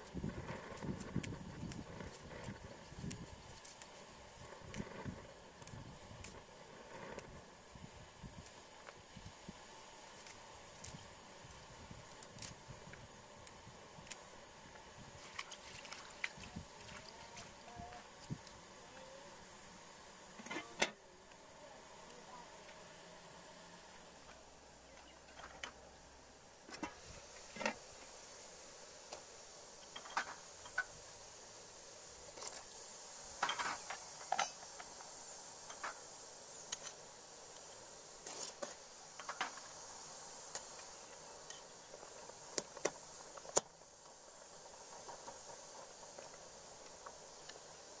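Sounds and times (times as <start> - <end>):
steady faint hiss: 0.0 - 48.0.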